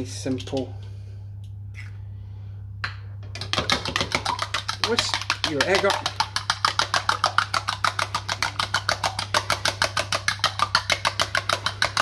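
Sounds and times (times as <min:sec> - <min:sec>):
fork whisking egg in a bowl: 0:03.4 - 0:12.0.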